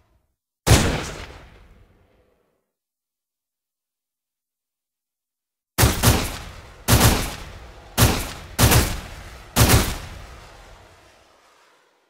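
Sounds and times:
gunshots with echoing decay: 0:00.7 - 0:02.2, 0:05.8 - 0:10.7.

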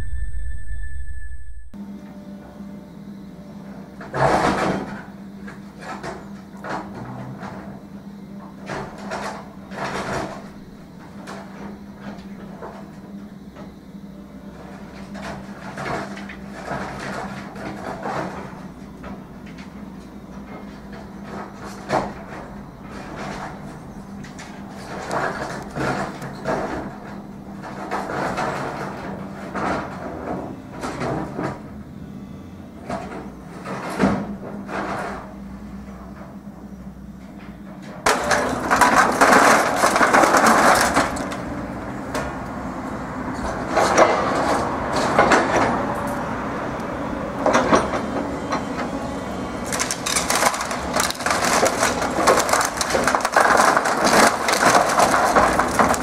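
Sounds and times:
crunching and scraping of metal roofing: 0:08.5 - 0:13.0, 0:14.6 - 0:31.7, 0:32.8 - 0:36.6, 0:37.2 - 0:42.5, 0:43.2 - 0:46.3, 0:47.4 - 0:56.0
excavator diesel engine running: 0:38.0 - 0:56.0.

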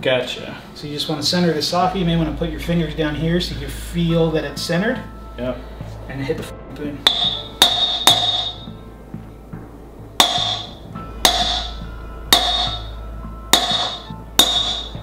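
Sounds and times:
hammer striking steel socket: 0:07.1 - 0:08.7, 0:10.2 - 0:12.9, 0:13.6 - 0:15.0.

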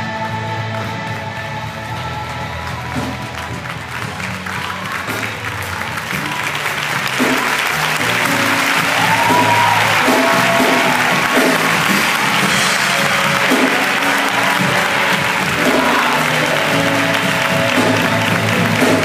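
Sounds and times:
audience applauding and cheering: 0:00.0 - 0:19.0
music with low bass line: 0:00.0 - 0:19.0
shouts from audience: 0:04.4 - 0:19.0.

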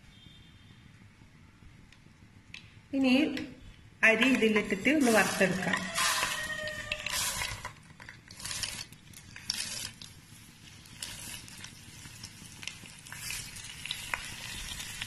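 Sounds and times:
rice sizzling in oil: 0:04.2 - 0:15.0.

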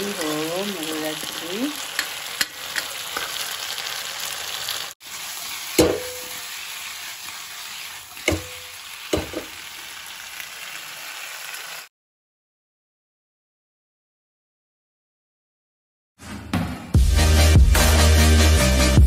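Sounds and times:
potatoes sizzling in hot oil: 0:00.0 - 0:11.9
metal spatula knocking on pan: 0:05.8 - 0:06.3, 0:08.3 - 0:09.5.

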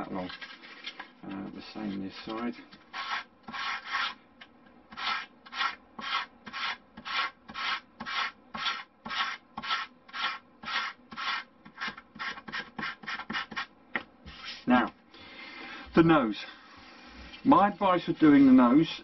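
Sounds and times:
sandpaper sanding wood: 0:02.9 - 0:04.2, 0:05.0 - 0:13.7.

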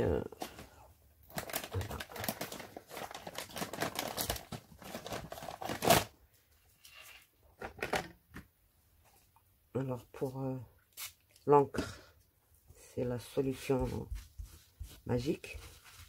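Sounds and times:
plastic sheet crinkling: 0:01.2 - 0:06.1.

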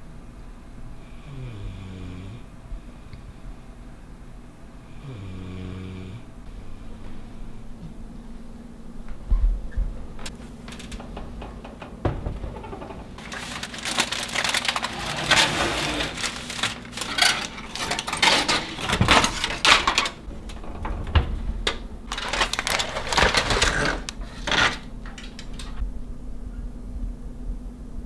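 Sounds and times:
aluminium foil crinkling: 0:10.2 - 0:11.8, 0:12.5 - 0:25.8
pan and oven door knocks: 0:10.4 - 0:13.5.

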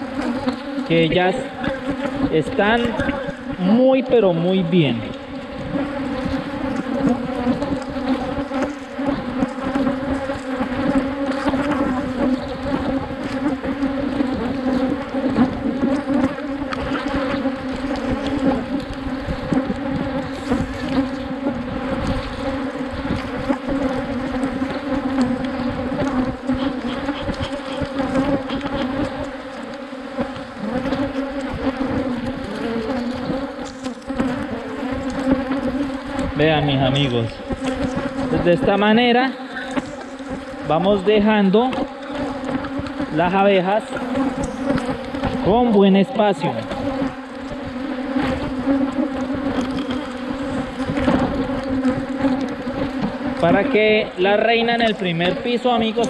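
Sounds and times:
bees buzzing: 0:00.0 - 0:56.0.

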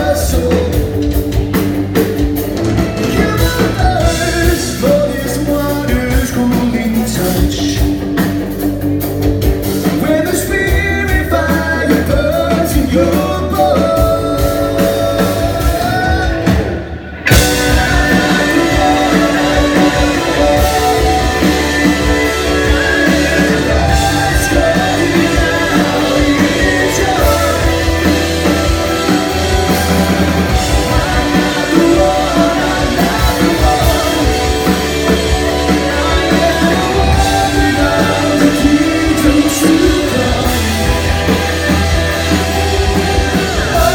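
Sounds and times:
person singing: 0:00.0 - 0:01.4, 0:03.0 - 0:08.3, 0:09.8 - 0:43.9
live rock band playing: 0:00.0 - 0:43.9.

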